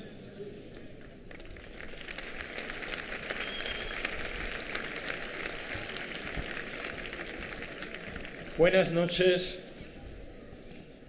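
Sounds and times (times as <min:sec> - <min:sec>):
crowd applauding: 0:01.2 - 0:09.2.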